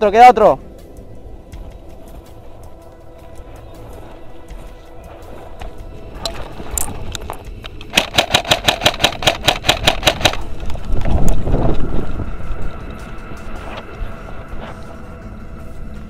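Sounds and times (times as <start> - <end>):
scuffing and rustling over dirt: 0.8 - 7.8
airsoft gun rapid shots: 7.9 - 10.4.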